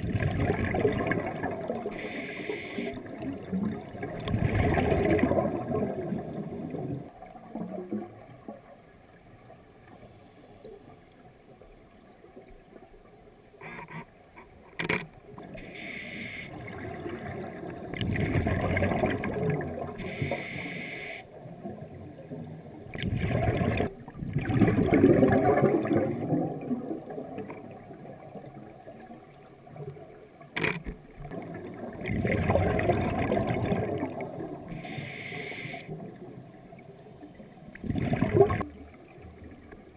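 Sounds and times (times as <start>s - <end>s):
exhaled bubbles underwater: 0.0s - 8.8s, 16.5s - 20.6s, 21.3s - 39.9s
regulator inhalation hiss: 1.9s - 3.1s, 15.6s - 16.6s, 20.0s - 21.3s, 34.7s - 36.0s.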